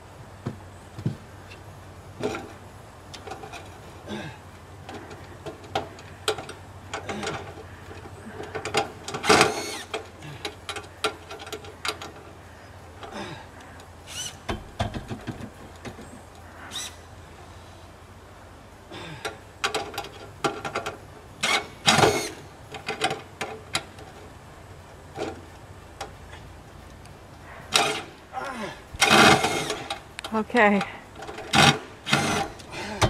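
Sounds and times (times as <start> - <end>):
tools clicking on gutter: 2.2 - 3.8, 4.8 - 12.4, 19.2 - 24.3, 27.7 - 28.2, 29.0 - 33.0.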